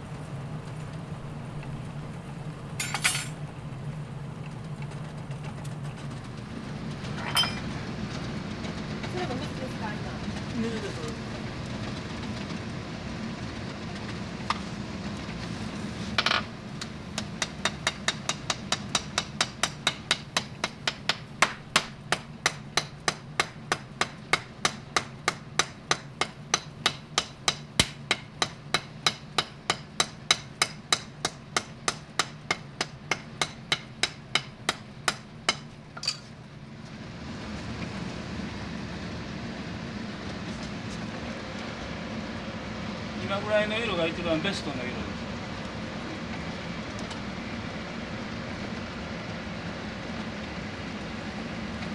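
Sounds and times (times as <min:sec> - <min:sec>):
hammer striking steel on anvil: 0:22.5 - 0:34.5.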